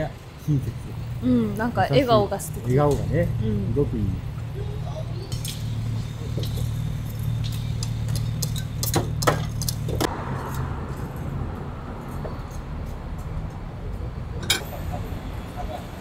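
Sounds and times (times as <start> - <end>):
hissing traffic noise: 0.0 - 16.0
low rumble of traffic: 0.0 - 16.0.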